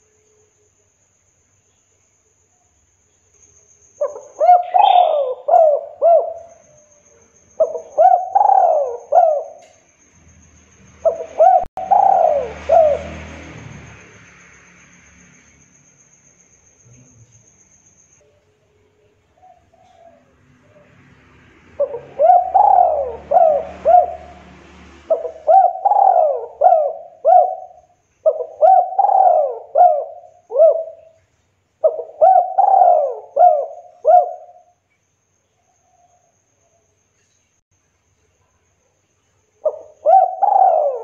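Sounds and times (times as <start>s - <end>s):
dove cooing: 4.0s - 6.7s, 7.6s - 9.8s, 11.0s - 13.4s, 19.4s - 21.0s, 21.8s - 31.2s, 31.8s - 34.7s, 39.6s - 41.0s.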